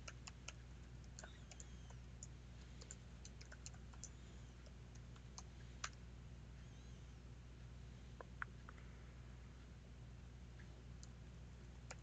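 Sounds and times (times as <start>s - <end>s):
keyboard typing: 0.0s - 6.0s, 11.0s - 12.0s
steady low hum: 0.0s - 12.0s.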